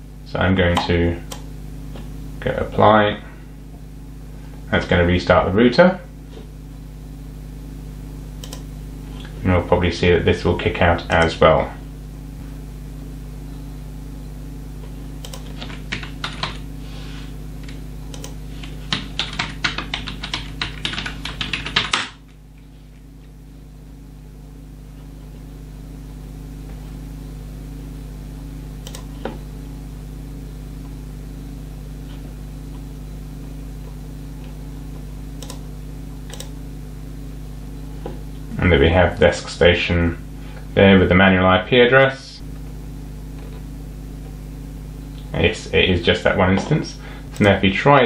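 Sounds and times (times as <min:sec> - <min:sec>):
low electrical hum: 0:00.0 - 0:48.0
typing on computer keyboard: 0:15.2 - 0:16.6, 0:18.1 - 0:22.2.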